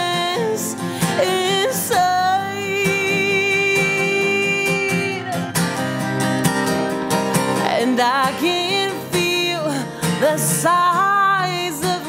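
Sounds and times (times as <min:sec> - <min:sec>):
woman singing: 0:00.0 - 0:05.7, 0:07.4 - 0:12.0
strummed acoustic guitar: 0:00.0 - 0:12.0.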